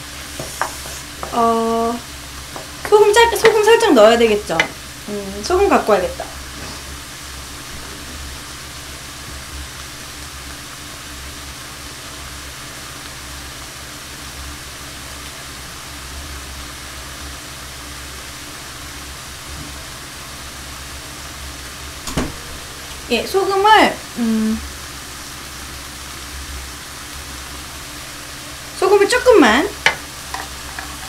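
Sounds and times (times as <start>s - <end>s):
food sizzling in frying pan: 0.0s - 31.0s
low hum: 20.8s - 28.4s.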